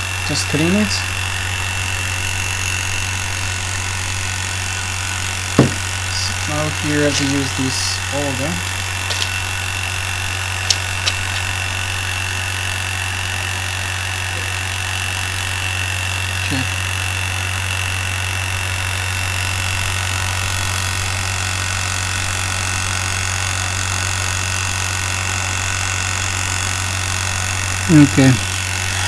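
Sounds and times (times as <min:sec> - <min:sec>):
vacuum pump humming: 0:00.0 - 0:29.0
short knock: 0:05.6 - 0:05.9.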